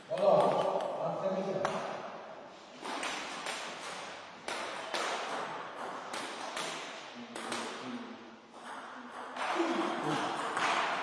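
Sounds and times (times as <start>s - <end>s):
table tennis ball bouncing: 0.0s - 1.0s, 2.8s - 7.8s, 8.5s - 11.0s.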